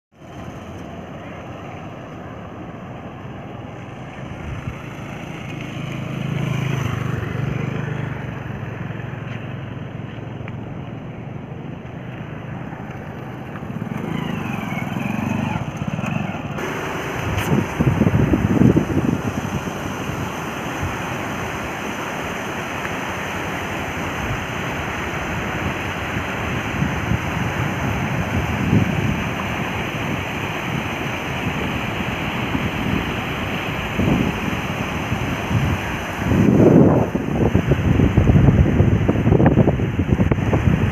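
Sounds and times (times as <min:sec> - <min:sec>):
vehicle engine humming: 0:00.2 - 0:39.6
river water rushing over rocks: 0:00.2 - 0:40.9
wind gusting on microphone: 0:04.2 - 0:05.5, 0:13.2 - 0:40.9.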